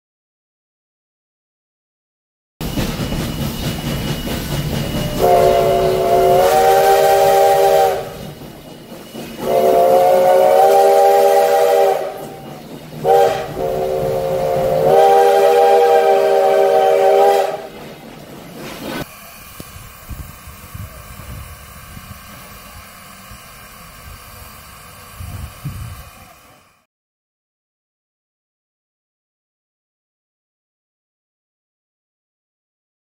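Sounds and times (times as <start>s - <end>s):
steam locomotive whistle blasts: 2.6s - 8.4s, 9.2s - 17.8s.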